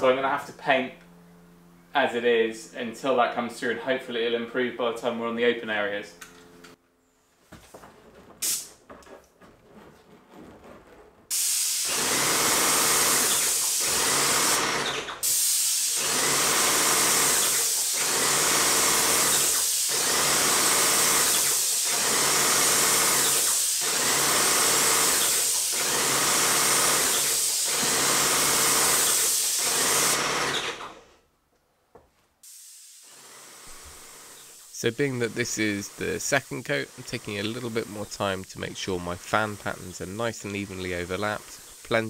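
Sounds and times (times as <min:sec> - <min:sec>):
paint sprayer hissing: 0:08.3 - 0:09.0, 0:11.3 - 0:30.8, 0:32.4 - 0:42.0.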